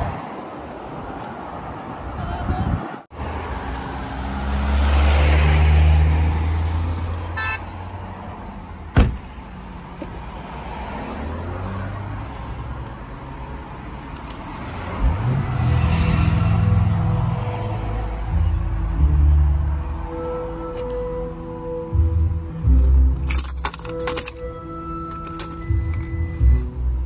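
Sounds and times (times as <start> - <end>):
low road rumble: 0.0 - 27.0
vehicle passing: 2.7 - 8.7
car door shutting: 8.9 - 9.3.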